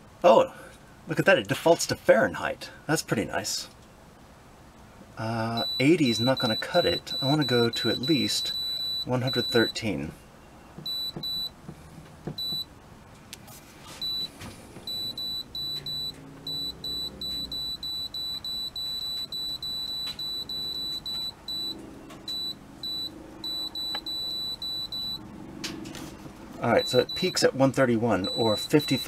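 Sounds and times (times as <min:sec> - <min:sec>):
short high beeps: 0:05.6 - 0:09.8, 0:10.9 - 0:11.5, 0:14.0 - 0:14.3, 0:14.9 - 0:25.2, 0:26.7 - 0:27.4, 0:28.2 - 0:29.0.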